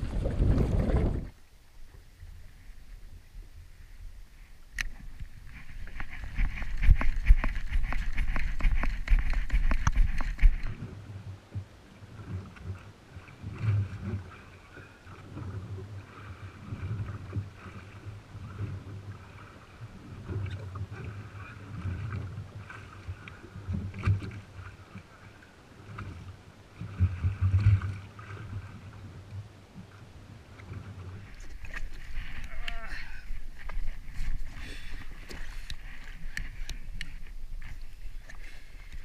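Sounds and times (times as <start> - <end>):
wind buffeting microphone: 0.0 - 1.4, 5.1 - 11.2
waves slapping hull: 0.0 - 39.0.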